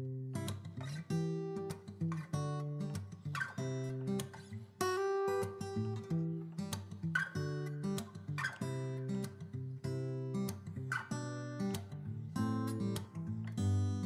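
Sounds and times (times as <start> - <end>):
strummed acoustic guitar: 0.0 - 14.0.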